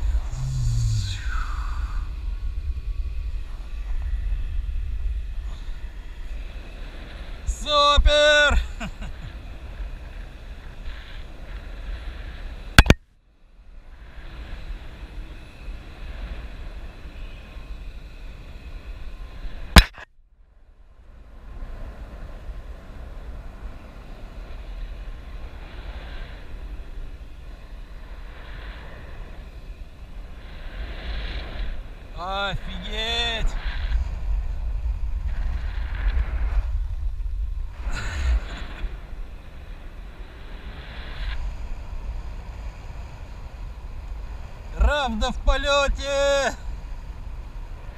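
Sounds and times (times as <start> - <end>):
wind rumbling on microphone: 0.0 - 47.9
sharp loud click: 12.8 - 13.0, 19.8 - 20.1.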